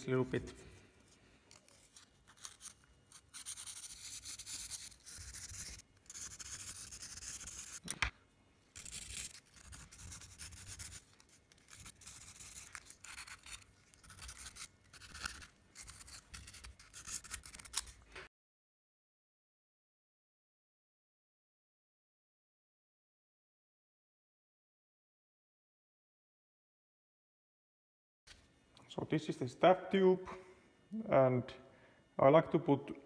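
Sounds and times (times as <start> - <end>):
sandpaper rubbing: 1.7 - 7.8, 8.8 - 17.9.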